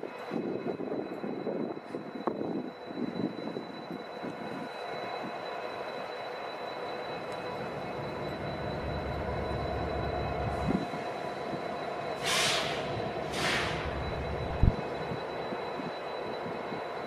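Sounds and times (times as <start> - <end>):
diesel locomotive engines running: 0.0 - 17.0
air hisses: 12.2 - 14.0.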